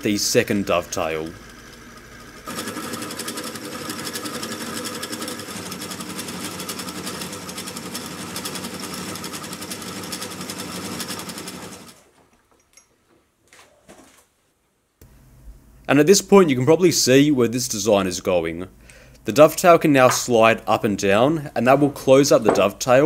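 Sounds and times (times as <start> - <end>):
milling machine cutting metal: 0.8 - 11.9.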